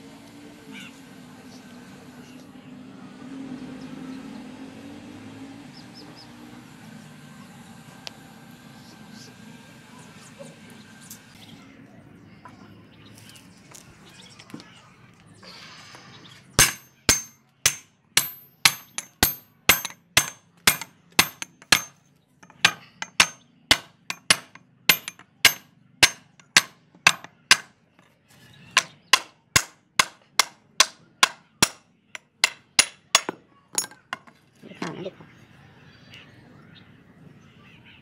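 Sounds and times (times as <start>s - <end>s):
hammer striking wooden handle: 16.6s - 27.7s, 28.8s - 34.3s.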